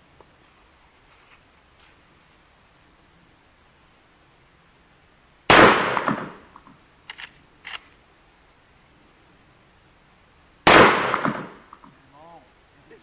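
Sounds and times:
shotgun shot: 0:05.5 - 0:06.4, 0:10.7 - 0:11.6
sharp clicks: 0:07.1 - 0:08.0.

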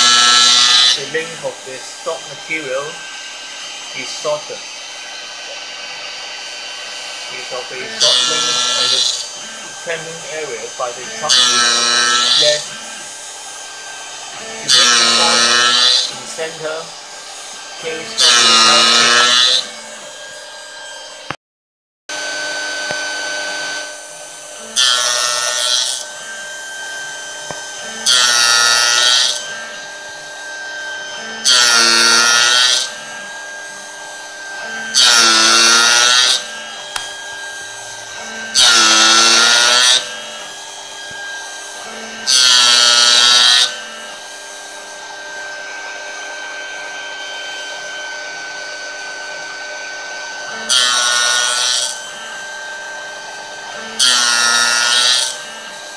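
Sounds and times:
gear cutter cutting metal: 0:00.0 - 0:21.4, 0:22.1 - 0:55.9
spindle whining: 0:00.0 - 0:21.4.

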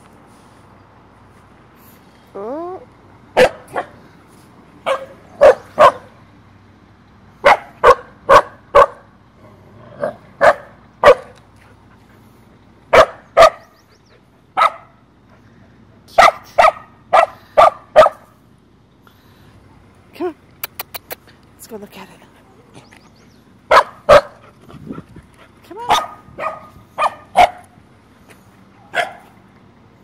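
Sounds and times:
dog barking sharply: 0:03.4 - 0:04.0, 0:04.8 - 0:06.1, 0:07.4 - 0:09.1, 0:10.4 - 0:11.4, 0:12.9 - 0:13.7, 0:14.6 - 0:15.0, 0:16.2 - 0:18.3, 0:23.7 - 0:24.4, 0:25.9 - 0:27.8, 0:28.9 - 0:29.3.

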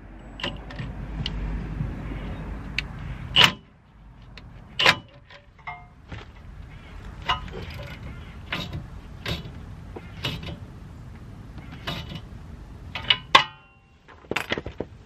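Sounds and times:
metal tools clanking on bolts: 0:04.4 - 0:10.6, 0:11.6 - 0:12.3, 0:13.0 - 0:14.8.

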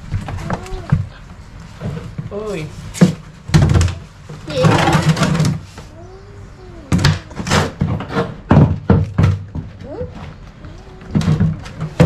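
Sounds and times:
slapping and rustling: 0:00.0 - 0:06.1, 0:06.8 - 0:12.0
sharp knocks and thuds: 0:01.8 - 0:05.8, 0:06.9 - 0:10.0.

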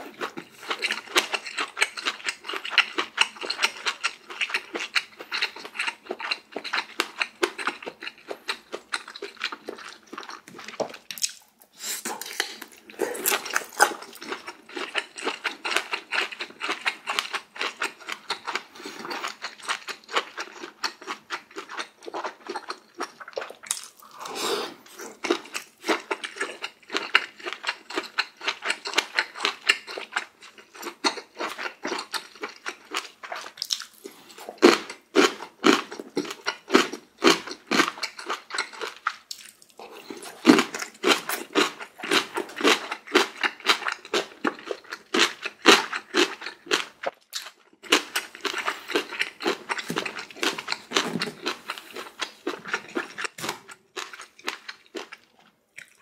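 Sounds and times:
person chewing crunchy food: 0:00.0 - 0:56.0.

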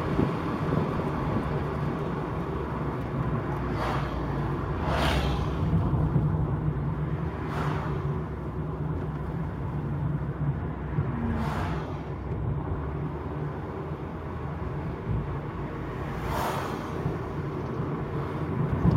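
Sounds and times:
wind noise: 0:00.0 - 0:08.1, 0:14.7 - 0:18.9
car engine and road rumble: 0:00.0 - 0:18.9.

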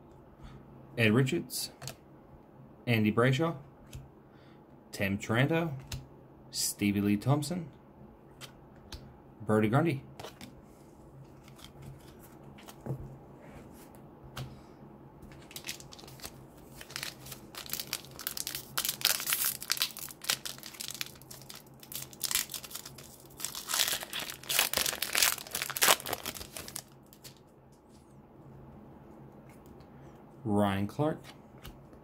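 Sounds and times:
foil wrapper crinkling and tearing: 0:15.4 - 0:27.4.

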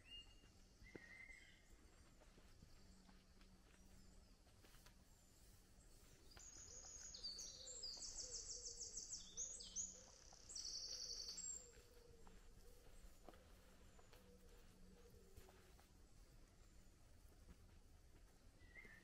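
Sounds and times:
songbird singing trills: 0:00.0 - 0:01.8, 0:05.9 - 0:15.6.

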